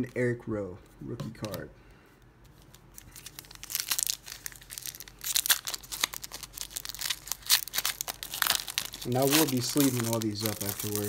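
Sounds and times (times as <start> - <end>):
foil wrapper crinkling and tearing: 2.5 - 11.0.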